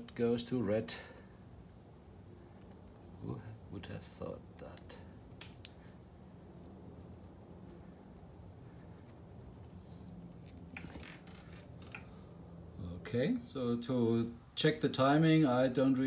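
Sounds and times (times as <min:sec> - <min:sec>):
crickets chirping: 0:00.0 - 0:16.0
handling clicks and rustles: 0:04.6 - 0:12.2.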